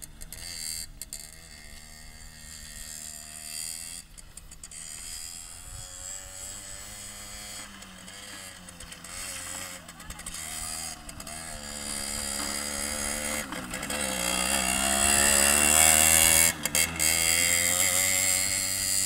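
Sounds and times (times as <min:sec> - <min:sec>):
two-stroke moped engine: 0:00.0 - 0:19.0.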